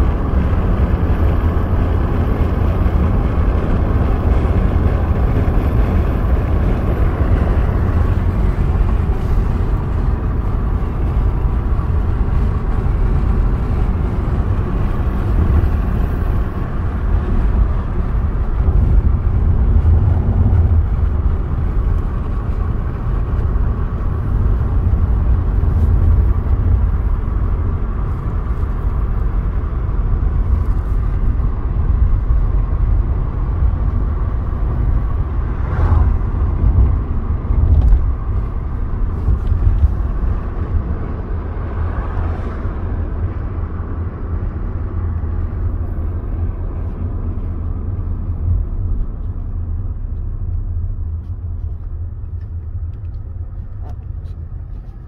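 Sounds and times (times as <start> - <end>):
car road noise rumble: 0.0 - 55.0.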